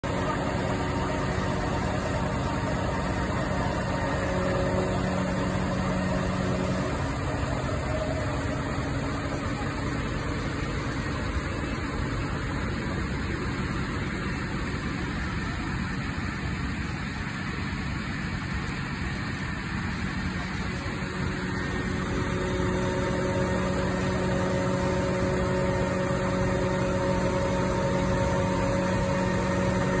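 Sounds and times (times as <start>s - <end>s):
diesel engines running: 0.0s - 30.0s.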